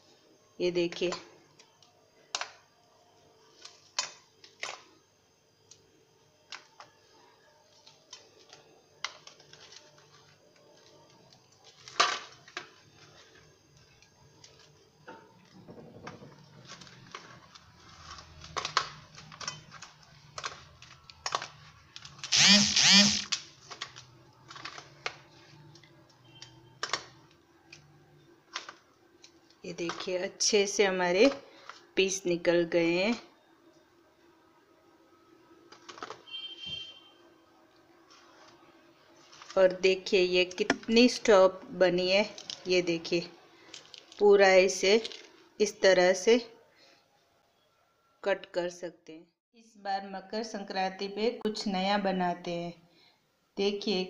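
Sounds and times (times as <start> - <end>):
brittle candy snapping and clicking: 26.4 - 27.1.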